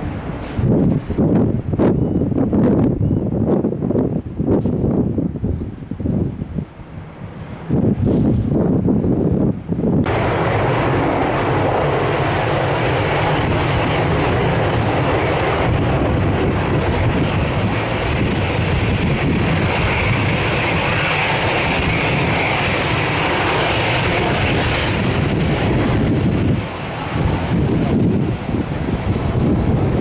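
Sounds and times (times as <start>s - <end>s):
airliner engine rush: 0.0s - 30.0s
high engine whine: 9.9s - 30.0s.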